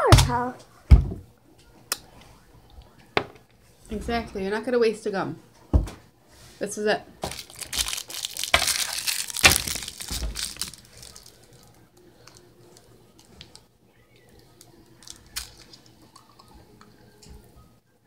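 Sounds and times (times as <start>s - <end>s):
gum wrapper crinkling and tearing: 7.2s - 16.6s.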